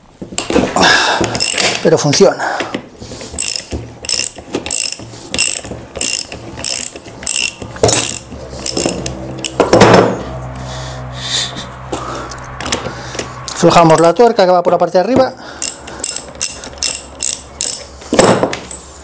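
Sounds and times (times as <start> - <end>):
ratchet wrench clicking: 1.3 - 1.8, 3.4 - 9.6, 15.6 - 17.9
loud knock: 9.6 - 10.2.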